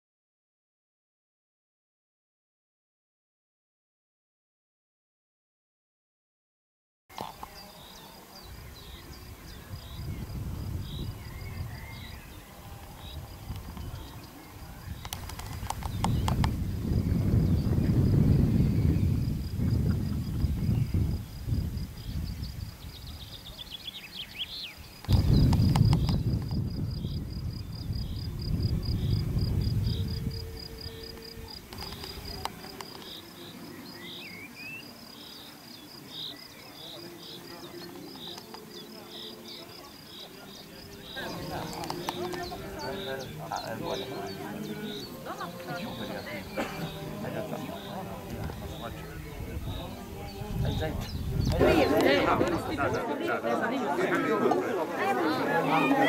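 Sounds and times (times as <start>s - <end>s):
high insect trill: 7.1s - 52.4s
birds chirping: 7.1s - 56.0s
wind rumbling on microphone: 8.3s - 33.2s, 47.9s - 53.1s
bird calling: 29.8s - 53.1s.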